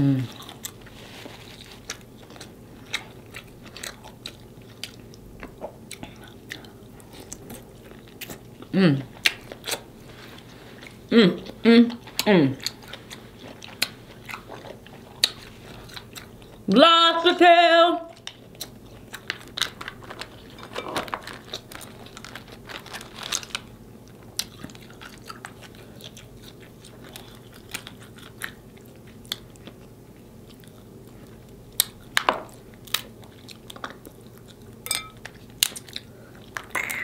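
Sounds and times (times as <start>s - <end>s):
chewing close to microphone: 0.3s - 16.7s, 18.1s - 37.0s.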